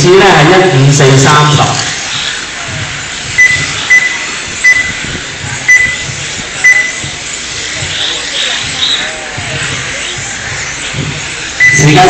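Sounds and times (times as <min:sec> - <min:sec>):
steady background noise: 0:00.0 - 0:12.0
short high electronic beeps: 0:03.4 - 0:05.0, 0:05.7 - 0:07.1, 0:11.6 - 0:12.0.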